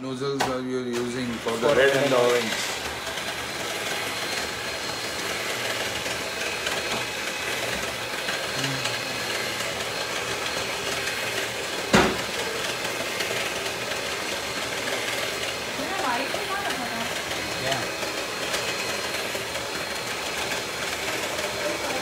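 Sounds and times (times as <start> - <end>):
mechanical whirring hum: 0.0 - 22.0
sharp knock: 11.9 - 12.2.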